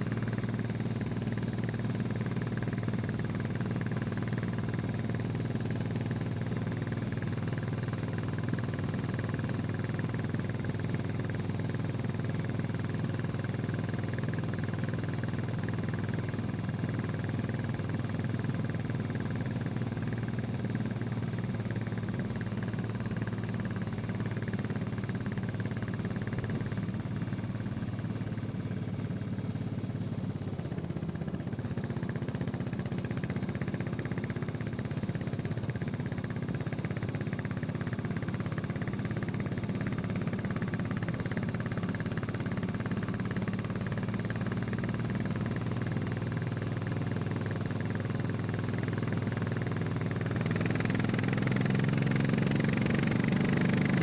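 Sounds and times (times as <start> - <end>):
motorcycle engine cruising: 49.2 - 54.0.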